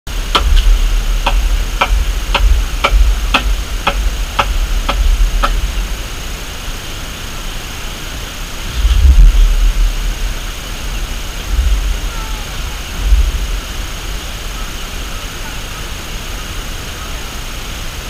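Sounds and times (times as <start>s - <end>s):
steady low rumble: 0.0s - 17.0s
hammer blows: 0.1s - 6.0s.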